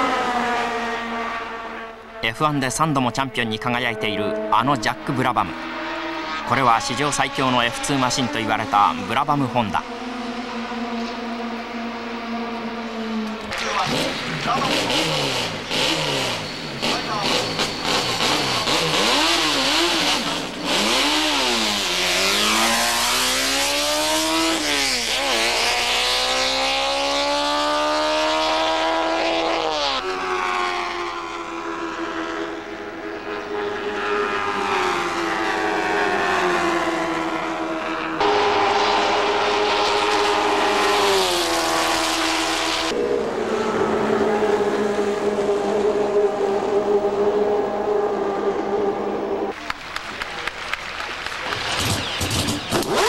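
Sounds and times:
racing car engine accelerating: 0.0 - 49.7, 51.0 - 53.0.

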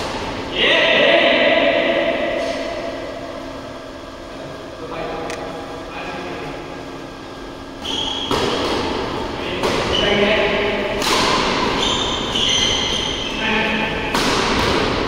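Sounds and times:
shoe squeaks on court floor: 7.8 - 8.4, 11.7 - 13.5
racket hitting shuttlecock: 7.8 - 15.0.

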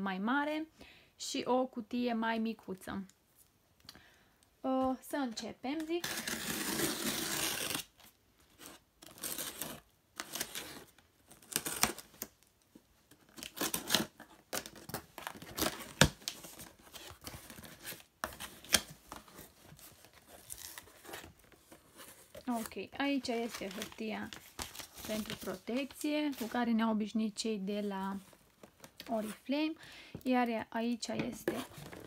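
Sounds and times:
packing tape tearing: 5.8 - 8.0, 8.6 - 12.3, 13.3 - 21.4.

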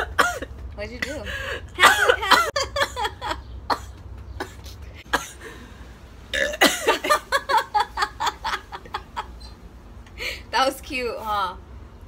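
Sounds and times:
woman coughing: 0.0 - 1.2, 1.8 - 3.1, 3.7 - 5.5, 6.4 - 7.2
woman's voice: 0.8 - 2.5, 10.2 - 11.6.

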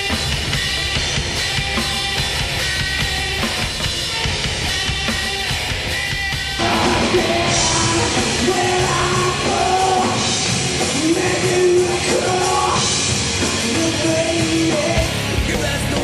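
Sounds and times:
drum kit: 0.0 - 16.0
electric guitars: 0.0 - 16.0
person singing: 6.6 - 16.0.

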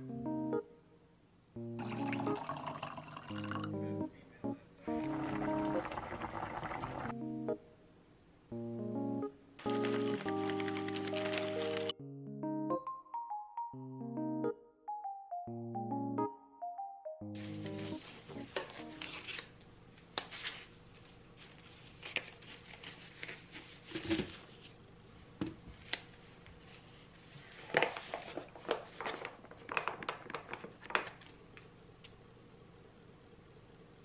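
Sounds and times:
paper packets crinkling: 9.7 - 11.9, 27.4 - 31.4.

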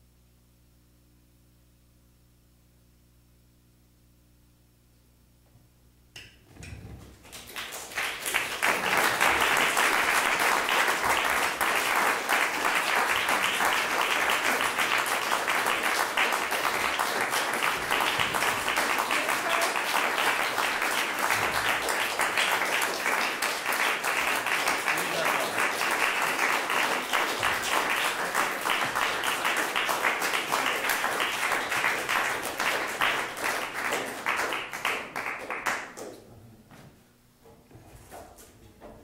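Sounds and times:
audience applauding: 7.2 - 36.2.

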